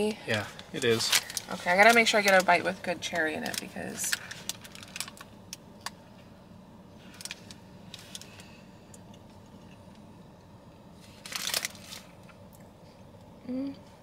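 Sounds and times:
low car cabin hum: 0.0 - 14.0
paper wrapper rustling: 0.3 - 5.3, 7.0 - 8.5, 11.0 - 12.3.

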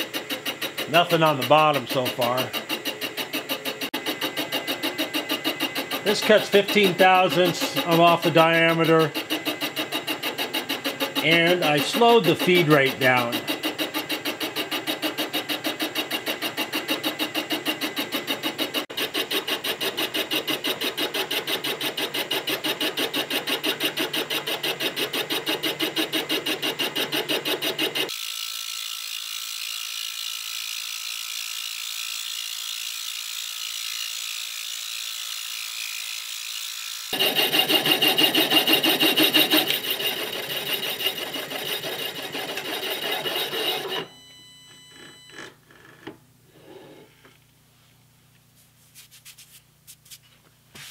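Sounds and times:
mill boring steel: 0.0 - 28.4, 35.4 - 44.2.

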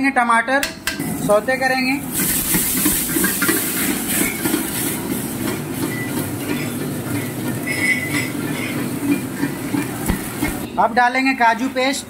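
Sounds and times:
gas burner roaring: 0.8 - 10.7
onion and tomato sizzling: 1.0 - 11.6
steel ladle clinking on wok: 5.8 - 9.7.

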